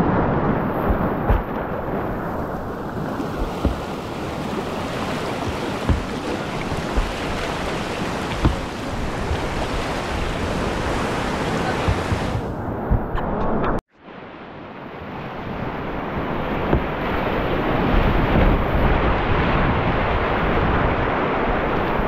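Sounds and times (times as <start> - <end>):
river rapid rushing: 0.0 - 12.6
short dull knocks: 3.4 - 4.0, 5.4 - 9.5.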